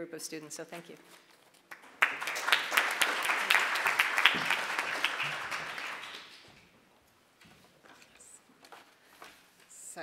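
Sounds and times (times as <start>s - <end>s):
audience applauding: 1.7s - 6.6s.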